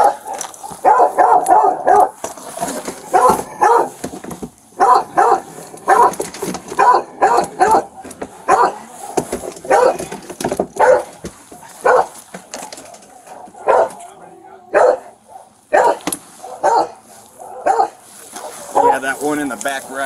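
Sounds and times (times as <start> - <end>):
dog barking: 0.0 - 2.2, 3.0 - 4.0, 4.8 - 6.2, 6.8 - 10.1, 10.8 - 11.2, 11.8 - 12.2, 13.3 - 19.0.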